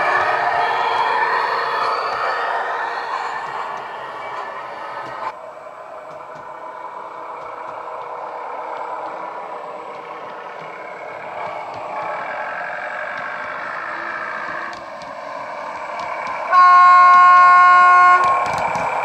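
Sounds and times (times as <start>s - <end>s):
diesel engine running: 0.0s - 19.0s
loud train horn blast: 16.5s - 18.5s.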